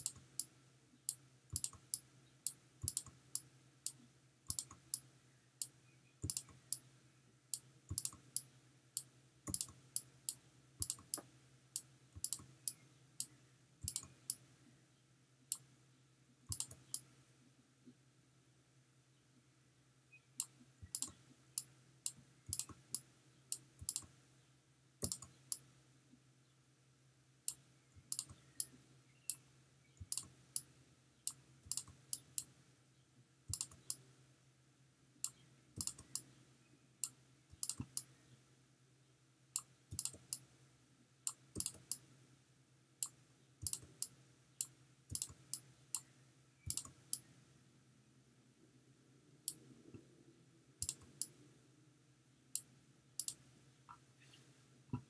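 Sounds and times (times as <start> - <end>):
computer mouse clicking: 0.0 - 0.5, 1.1 - 6.9, 7.5 - 14.5, 16.5 - 17.1, 20.4 - 24.2, 25.0 - 25.7, 27.5 - 29.4, 30.0 - 30.7, 31.3 - 32.5, 33.5 - 34.1, 35.2 - 36.4, 37.0 - 38.2, 39.6 - 40.5, 41.3 - 42.1, 43.0 - 46.1, 46.7 - 47.3, 49.4 - 50.0, 50.8 - 51.4, 52.6 - 54.0
faint low hum: 0.0 - 55.0.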